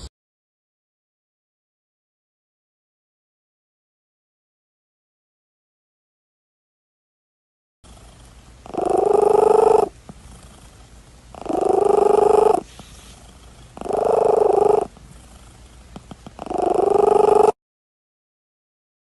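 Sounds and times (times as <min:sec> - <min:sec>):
cat purring: 0:07.9 - 0:17.6.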